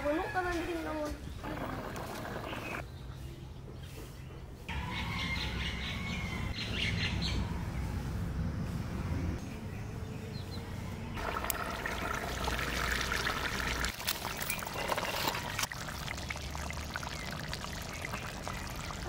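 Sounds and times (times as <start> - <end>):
curry bubbling and crackling: 11.2 - 19.0.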